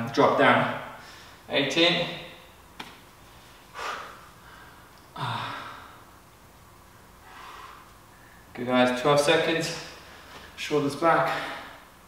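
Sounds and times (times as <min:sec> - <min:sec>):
man exhaling heavily: 0:03.7 - 0:06.0.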